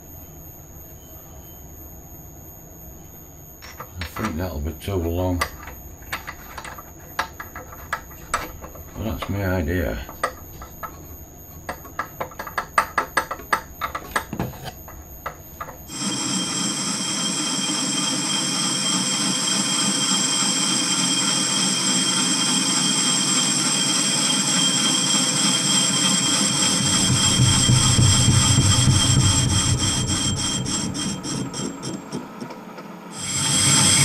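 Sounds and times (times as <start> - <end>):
high whining tones: 0.0 - 34.0
sharp metal clicks and knocks: 5.4 - 9.3
lathe running: 5.4 - 11.1, 11.7 - 34.0
lathe cutting scrape: 15.9 - 32.5, 33.1 - 34.0.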